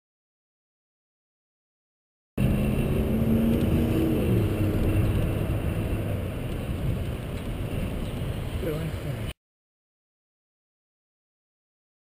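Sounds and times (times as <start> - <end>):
steady low traffic rushing: 2.4 - 9.3
vehicle passing: 2.4 - 9.3.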